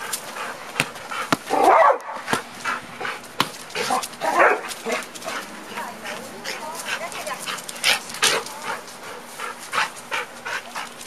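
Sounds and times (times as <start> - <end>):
volleyball slaps: 0.7 - 2.5, 3.4 - 3.6
dog barking: 1.5 - 2.3, 3.9 - 5.0.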